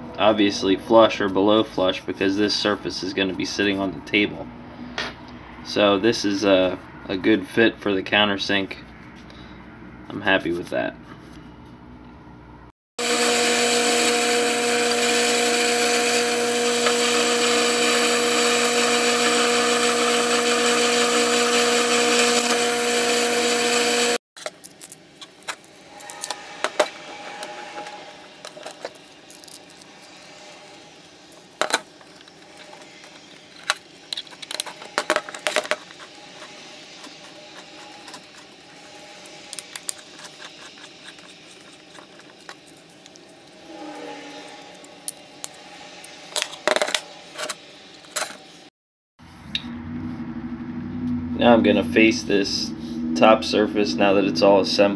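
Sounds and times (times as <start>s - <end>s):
milling machine motor whine: 13.0s - 48.7s.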